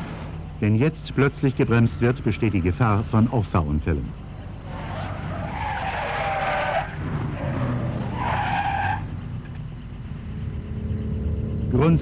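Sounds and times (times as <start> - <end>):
low traffic rumble: 0.0 - 12.0
car tyres squealing: 4.2 - 10.0.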